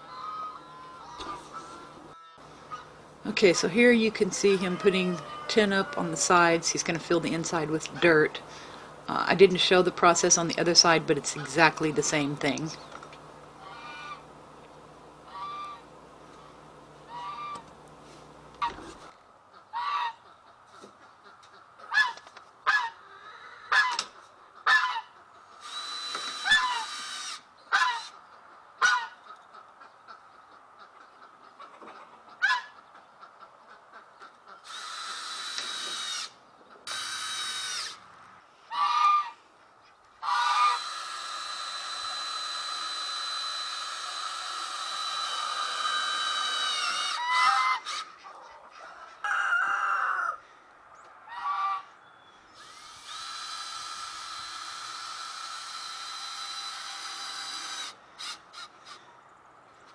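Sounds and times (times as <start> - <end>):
geese honking: 0.0 - 12.7, 13.6 - 14.3, 15.2 - 15.9, 17.0 - 17.7, 18.6 - 25.3, 27.7 - 28.2, 28.8 - 34.7, 38.6 - 39.5, 40.2 - 40.9, 46.9 - 50.4, 51.3 - 52.0
cordless drill running: 25.6 - 27.4, 34.6 - 38.0, 40.4 - 48.0, 52.6 - 59.0.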